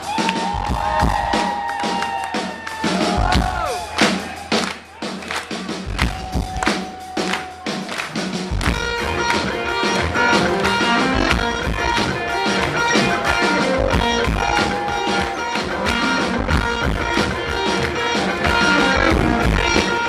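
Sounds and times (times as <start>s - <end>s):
electric guitar chords: 8.4s - 20.0s.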